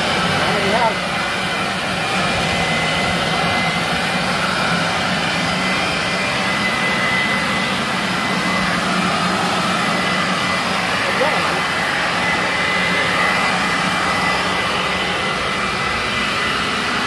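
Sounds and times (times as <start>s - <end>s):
blower-vacuum running: 0.0s - 17.0s.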